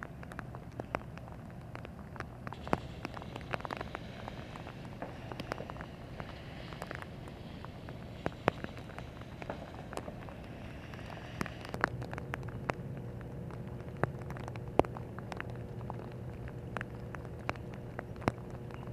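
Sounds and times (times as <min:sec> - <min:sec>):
low steady rumble: 0:00.0 - 0:18.9
rain falling: 0:00.0 - 0:18.9
raindrops ticking close by: 0:00.0 - 0:18.9.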